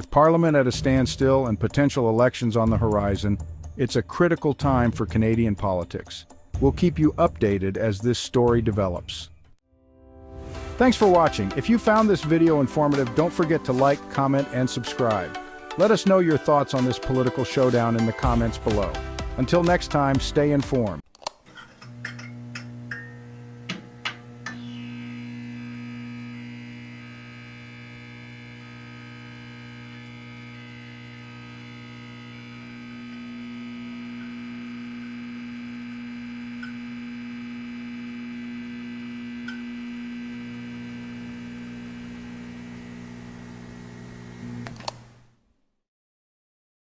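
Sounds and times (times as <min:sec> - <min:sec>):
higher synth notes shifting: 0:00.3 - 0:03.5
low synth drone: 0:00.6 - 0:01.9.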